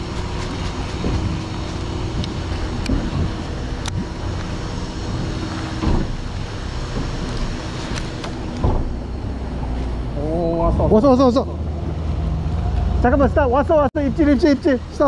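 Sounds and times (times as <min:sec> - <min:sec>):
wind on microphone: 0:00.0 - 0:06.2
boat engine running: 0:00.0 - 0:15.0.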